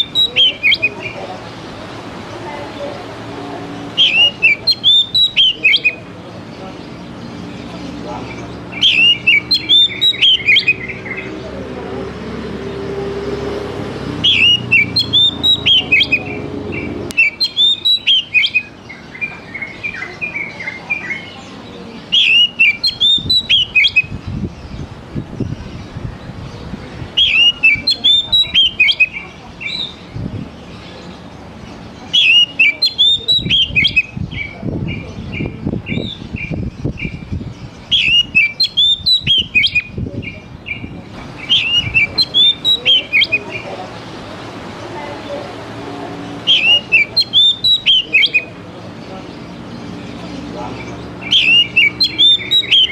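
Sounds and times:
bird singing whistled phrases: 0:00.0 - 0:01.2, 0:04.0 - 0:06.0, 0:08.7 - 0:11.3, 0:14.2 - 0:21.4, 0:22.1 - 0:24.1, 0:27.2 - 0:30.0, 0:32.1 - 0:34.5, 0:37.9 - 0:40.0, 0:40.7 - 0:43.7, 0:46.5 - 0:48.5, 0:51.2 - 0:52.9.

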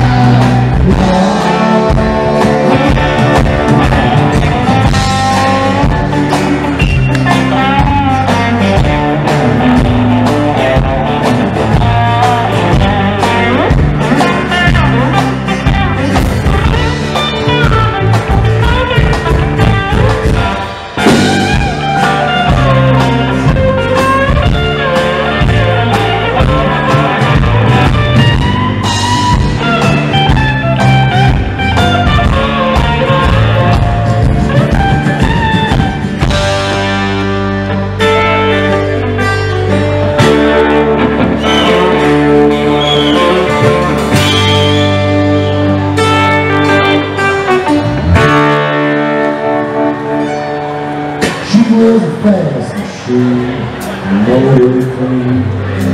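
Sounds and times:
drum kit: 0:00.0 - 0:52.0
electric guitar: 0:00.0 - 0:55.9.

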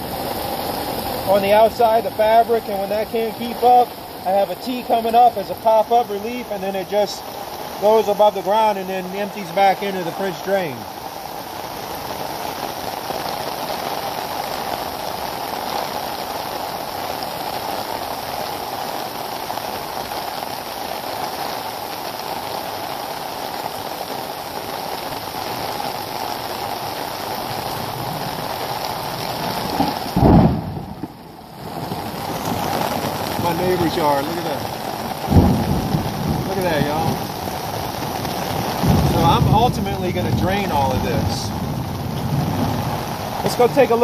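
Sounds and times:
heavy rain on water: 0:00.0 - 0:44.0
loud low thump: 0:29.8 - 0:31.2.

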